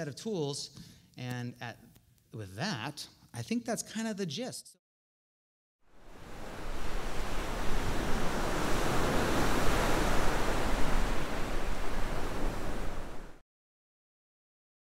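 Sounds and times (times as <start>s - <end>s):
ocean surf waves: 5.9s - 13.4s.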